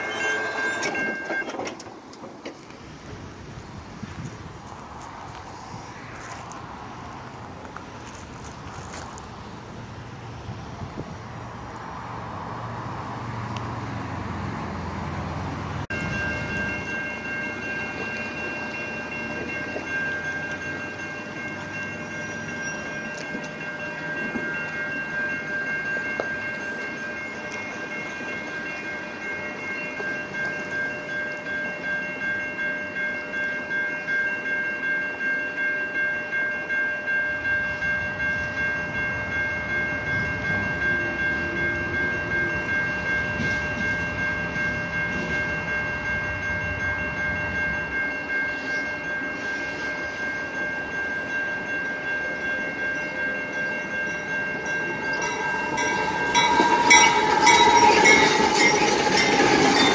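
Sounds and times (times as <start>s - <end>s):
level-crossing warning bell ringing: 0.0s - 2.1s, 15.9s - 59.9s
low train rumble: 0.0s - 59.9s.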